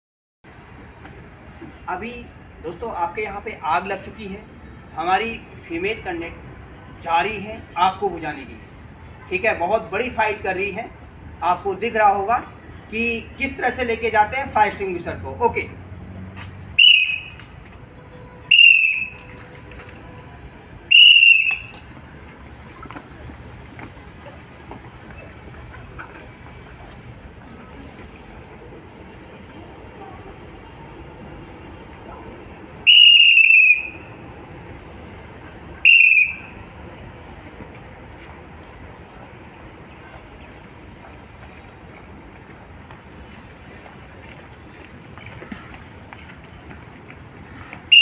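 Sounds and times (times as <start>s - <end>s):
hand whistle blasts: 16.8s - 17.4s, 18.5s - 19.3s, 20.9s - 21.8s, 32.9s - 34.1s, 35.8s - 36.6s.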